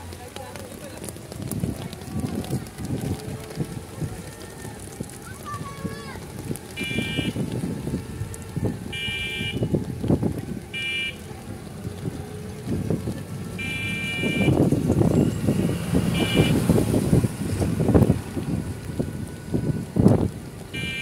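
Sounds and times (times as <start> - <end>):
road and traffic rumble: 0.0 - 21.0
vehicle horn honks: 6.8 - 7.4, 8.9 - 9.7, 10.8 - 11.2, 13.6 - 14.6, 15.6 - 16.7, 20.8 - 21.0.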